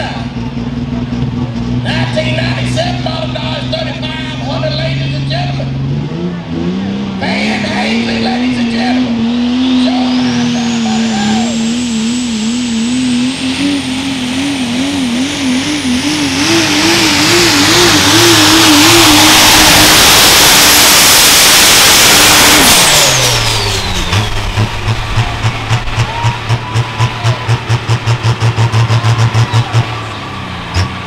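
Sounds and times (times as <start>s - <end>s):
diesel truck engine roaring: 0.0s - 31.0s
turbo whistle: 22.9s - 27.7s.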